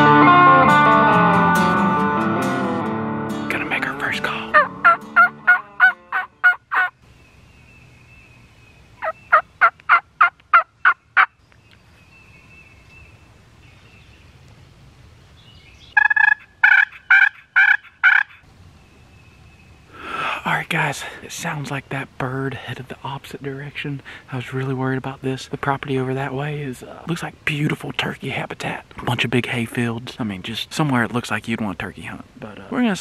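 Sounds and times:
turkey call hen yelps: 4.5s - 7.0s, 16.0s - 18.4s.

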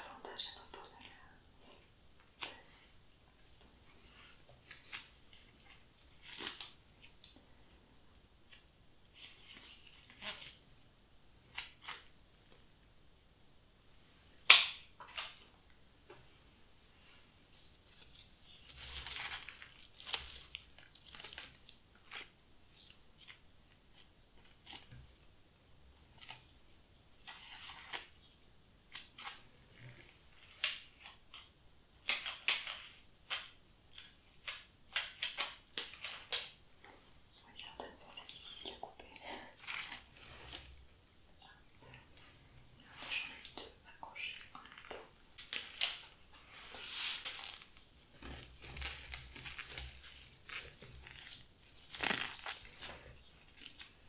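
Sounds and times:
rustling of dry stems and newspaper: 17.5s - 23.3s, 45.5s - 54.0s.

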